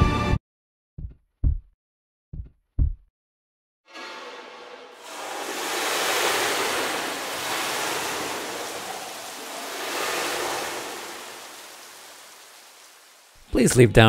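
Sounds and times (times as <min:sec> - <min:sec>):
rushing wind-like noise: 0:05.0 - 0:13.4.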